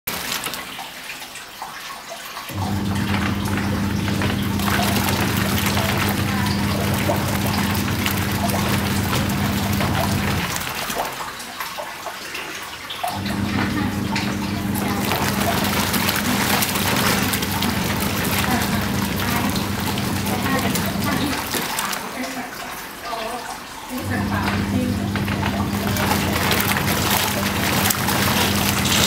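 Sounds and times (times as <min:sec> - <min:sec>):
hose running into tub: 0:00.0 - 0:29.0
washing machine agitating: 0:00.0 - 0:29.0
water splashing: 0:00.0 - 0:29.0
motor humming: 0:02.5 - 0:10.8, 0:13.1 - 0:21.8, 0:24.0 - 0:29.0.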